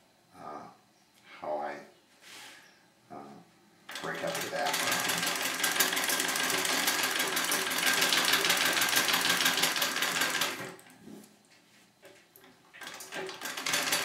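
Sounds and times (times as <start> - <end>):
sewing machine clattering: 3.9 - 10.8, 12.8 - 14.0.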